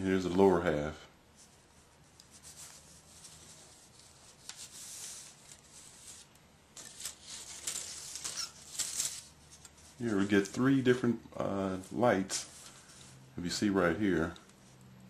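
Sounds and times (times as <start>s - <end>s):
plastic parts rustling and clicking: 5.3s - 10.0s.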